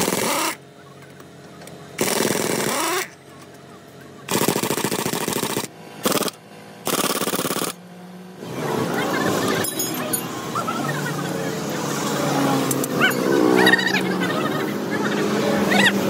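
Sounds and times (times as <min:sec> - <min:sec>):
pneumatic air tool hammering: 0:00.0 - 0:00.6, 0:02.0 - 0:03.2, 0:04.3 - 0:07.8.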